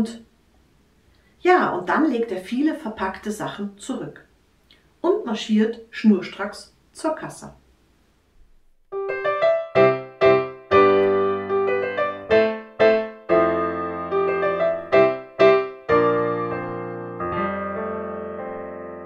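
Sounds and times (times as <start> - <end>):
gentle piano melody: 8.9 - 19.0.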